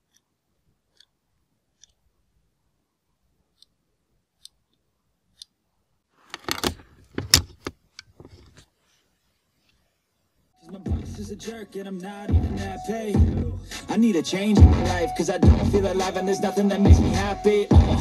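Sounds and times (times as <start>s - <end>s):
metal and plastic clatter: 6.3s - 8.7s.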